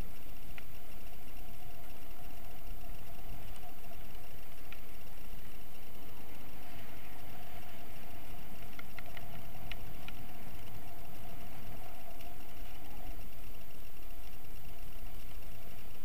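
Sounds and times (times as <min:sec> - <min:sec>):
light clicks: 0:00.1 - 0:16.0.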